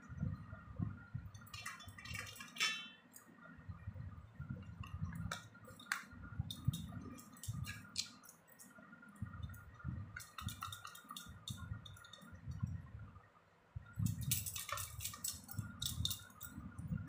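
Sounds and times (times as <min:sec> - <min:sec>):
bangles clinking: 0:14.1 - 0:16.6.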